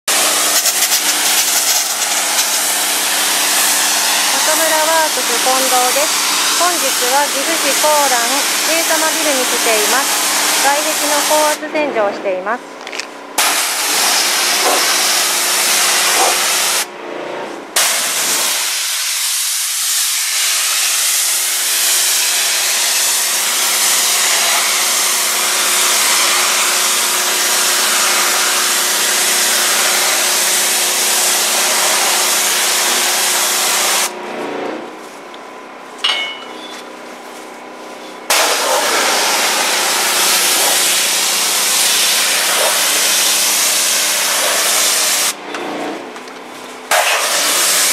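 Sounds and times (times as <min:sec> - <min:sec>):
pressure washer spraying: 0:00.1 - 0:11.7, 0:13.4 - 0:16.9, 0:17.8 - 0:34.1, 0:38.3 - 0:45.4, 0:46.9 - 0:47.9.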